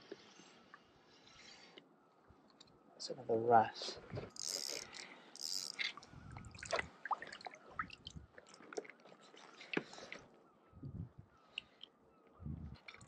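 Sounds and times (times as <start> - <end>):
fishing tackle clicks and taps: 4.3 - 6.0.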